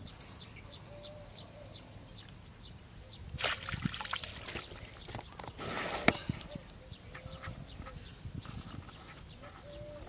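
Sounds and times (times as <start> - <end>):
fish splashing out of water: 3.4 - 5.0
small splashes and drips: 3.4 - 5.1.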